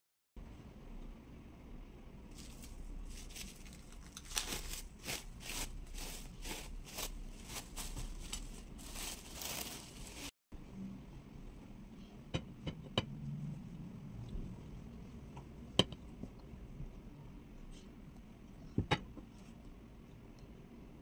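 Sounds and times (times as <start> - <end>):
cling film crinkling: 2.3 - 10.3.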